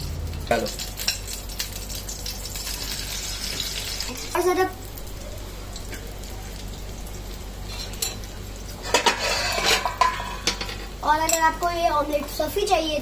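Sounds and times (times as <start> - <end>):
faint batter sizzling: 0.0 - 13.0
spoon scraping ceramic bowl: 8.9 - 10.6.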